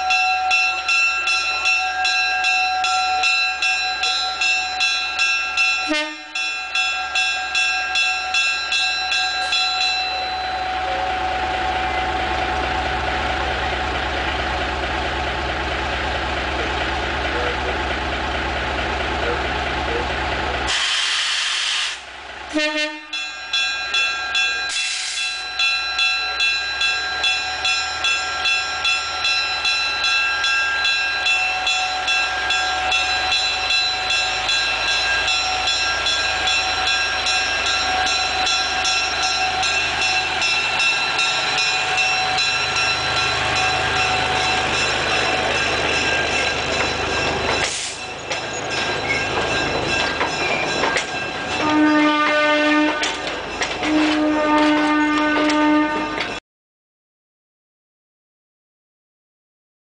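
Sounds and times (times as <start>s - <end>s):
locomotive bell ringing: 0.0s - 20.7s, 22.5s - 56.4s
low train horn: 5.9s - 6.4s, 20.7s - 23.2s, 51.6s - 53.2s, 53.8s - 56.4s
diesel engine running: 10.6s - 22.6s
train wheels clicking on rails: 24.0s - 25.4s, 26.4s - 56.4s.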